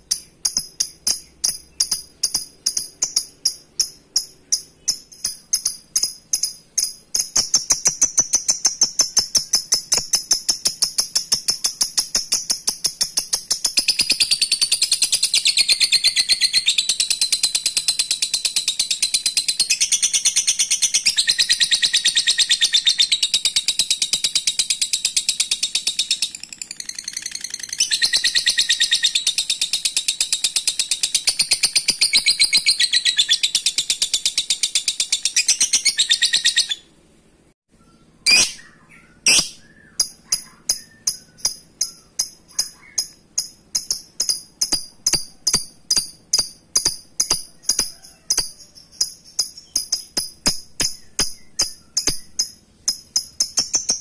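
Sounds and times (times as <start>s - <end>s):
bird chattering trill: 0.0s - 36.9s, 37.8s - 54.0s
bird chirps: 0.0s - 37.0s, 37.7s - 54.0s
short bird chips: 37.8s - 54.0s.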